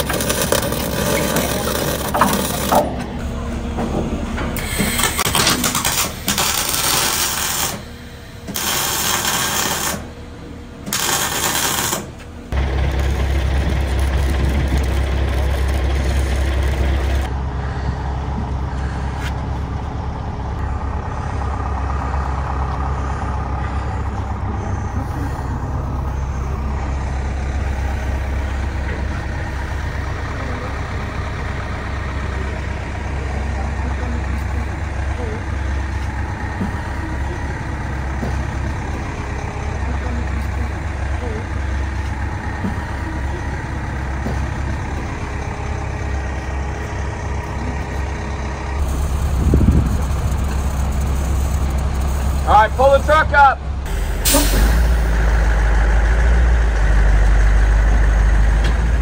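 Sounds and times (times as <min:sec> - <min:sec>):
diesel engine rumble: 0:00.0 - 0:59.0
arc welding crackling hiss: 0:04.6 - 0:07.8, 0:08.5 - 0:10.1, 0:10.9 - 0:12.2, 0:48.8 - 0:52.5.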